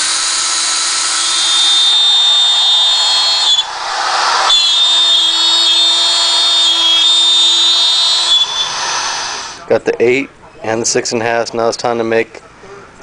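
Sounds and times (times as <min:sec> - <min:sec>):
power drill boring fiberboard: 0:00.0 - 0:09.6
wood router cutting: 0:00.0 - 0:09.6.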